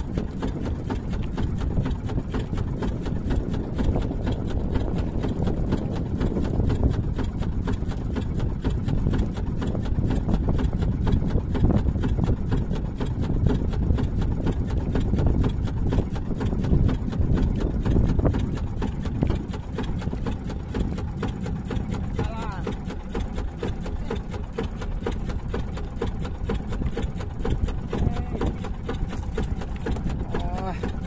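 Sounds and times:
boat engine thudding: 0.0s - 31.0s.

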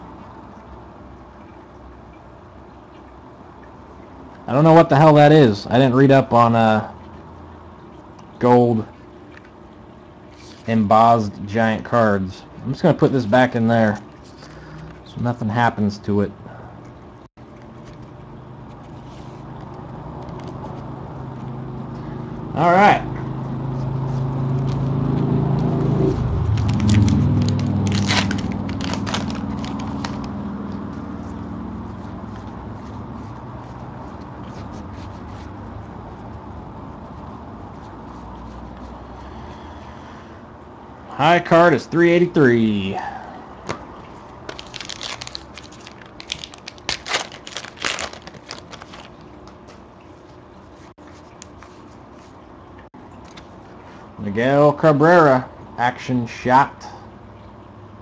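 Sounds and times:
low droning hum: 6.9s - 41.6s, 42.2s - 51.4s
card pack wrapper tearing: 26.4s - 30.4s, 44.5s - 49.3s.

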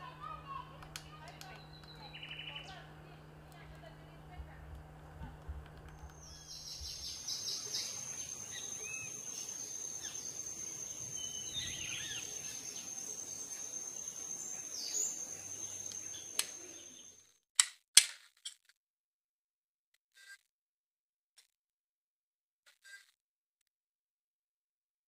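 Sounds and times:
birds chirping: 0.0s - 17.2s
woodpecker pecking bark: 0.5s - 2.8s
high-pitched whine: 5.9s - 17.2s.

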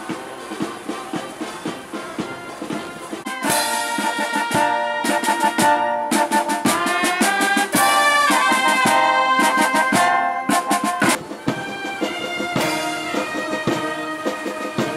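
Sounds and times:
bass and snare drums: 0.0s - 14.9s
brass playing a tune: 0.1s - 14.9s.

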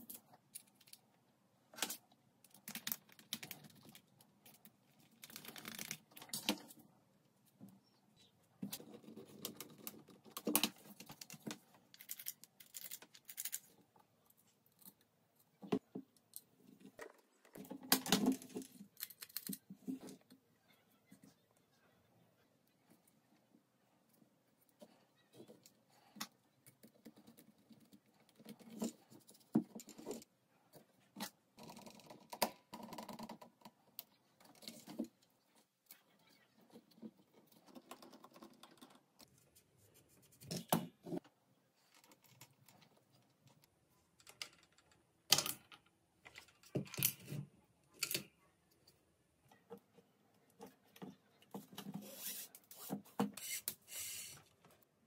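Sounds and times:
wooden parts clicking and knocking: 44.1s - 47.3s.

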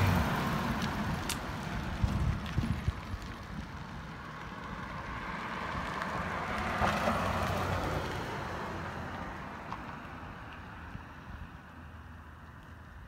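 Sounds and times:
vehicle passing by: 0.0s - 3.2s, 3.8s - 10.4s.

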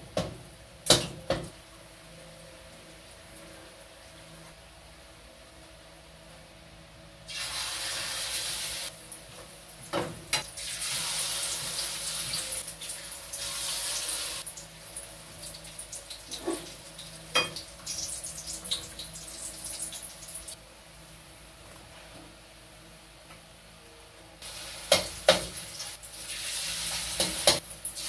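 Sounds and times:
omelette sizzling in hot oil: 7.3s - 8.9s, 10.4s - 20.6s, 24.4s - 28.0s.

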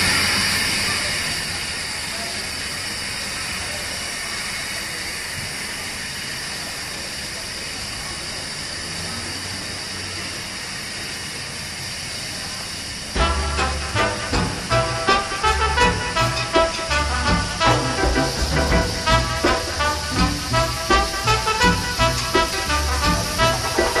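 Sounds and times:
steam hissing from locomotive: 0.0s - 24.0s.

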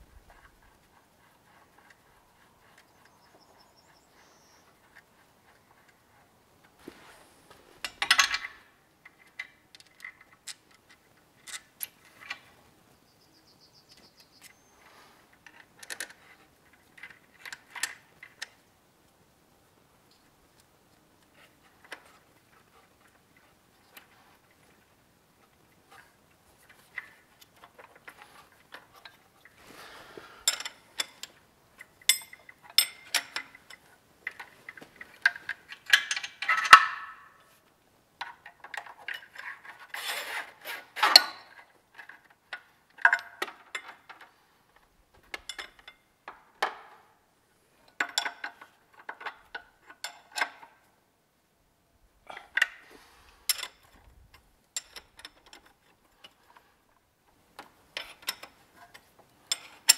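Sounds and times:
metal tools clinking: 7.8s - 8.6s, 30.4s - 37.3s, 53.4s - 54.0s, 58.0s - 59.9s.

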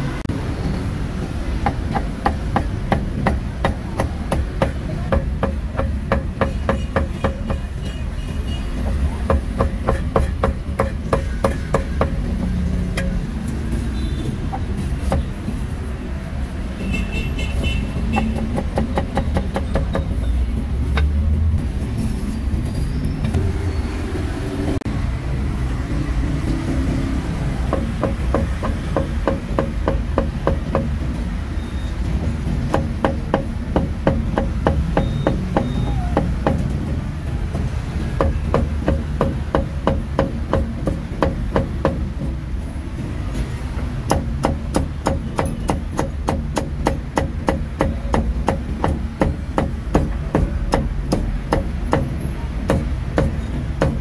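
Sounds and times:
street traffic rumble: 0.0s - 54.0s
cleaver chopping on wooden block: 9.2s - 12.2s, 44.1s - 54.0s.

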